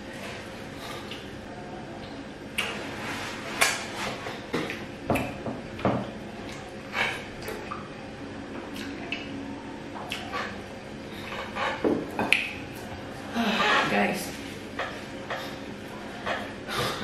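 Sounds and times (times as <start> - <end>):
mouth sounds of eating: 10.0 - 10.6.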